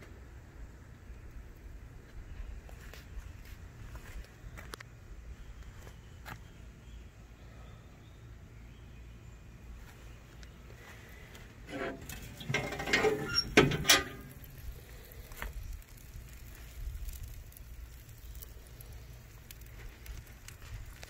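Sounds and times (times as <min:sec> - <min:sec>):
metal lid scraping: 0:11.7 - 0:14.4
sharp metallic clanks: 0:11.7 - 0:14.4.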